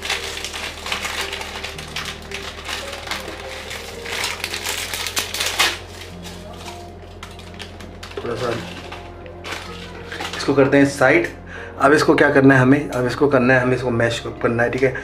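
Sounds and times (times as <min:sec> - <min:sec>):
packaging crinkling and rustling: 0:00.0 - 0:11.1
faint background music: 0:00.0 - 0:15.0.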